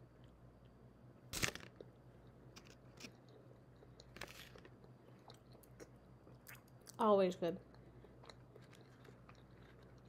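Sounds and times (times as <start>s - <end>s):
person chewing: 1.4s - 7.0s, 7.6s - 10.0s.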